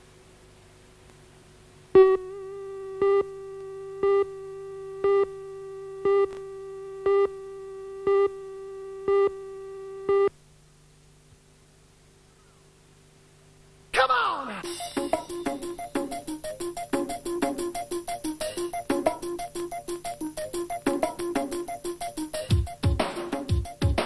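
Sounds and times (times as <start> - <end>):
countdown beeps: 7.1 - 7.4, 14.6 - 22.8.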